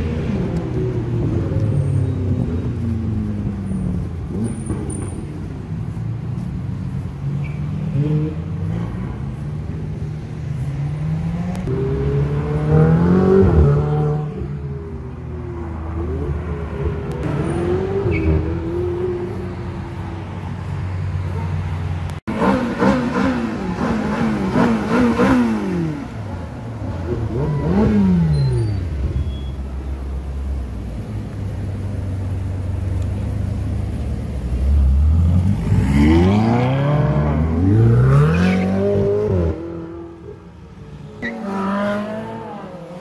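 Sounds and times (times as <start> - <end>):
sports car engines passing: 0.0 - 43.0.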